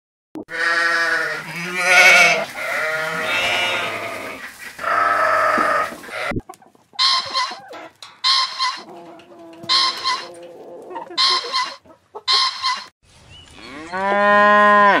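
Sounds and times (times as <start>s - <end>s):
sheep bleating: 0.5s - 6.4s, 9.6s - 10.4s, 11.2s - 11.8s.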